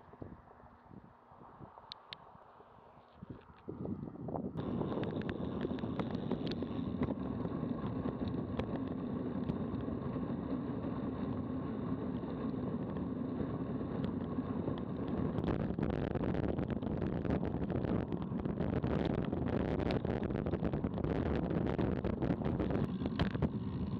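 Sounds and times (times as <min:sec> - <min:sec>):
wind rush on microphone: 0:00.0 - 0:02.5, 0:03.1 - 0:23.9
bicycle tyre noise on asphalt: 0:00.0 - 0:23.9
faint clicks: 0:04.6 - 0:10.2.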